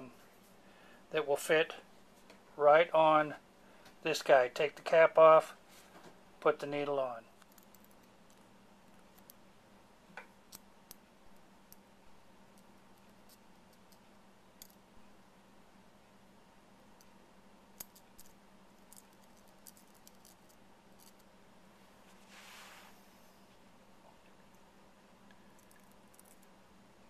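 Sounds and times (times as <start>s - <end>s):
faint steady hum: 0.0s - 27.0s
faint clicks and ticks: 24.0s - 26.5s.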